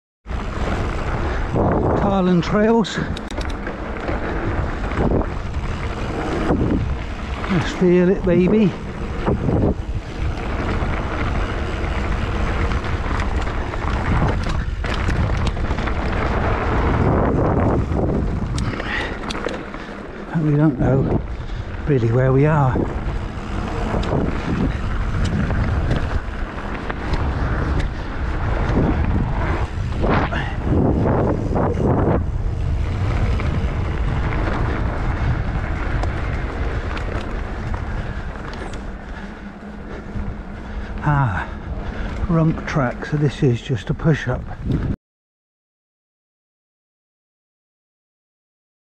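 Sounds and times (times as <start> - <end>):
tyres hissing on dirt trail: 0.3 - 44.6
wind rumbling on microphone: 0.3 - 45.0
sharp clicks and rattles: 0.6 - 30.0, 32.9 - 41.2
sharp clicks: 3.1 - 3.7.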